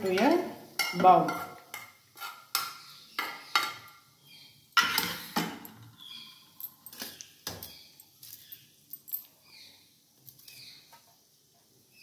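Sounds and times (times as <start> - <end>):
metal spoon clinking on pot: 0.1 - 3.9.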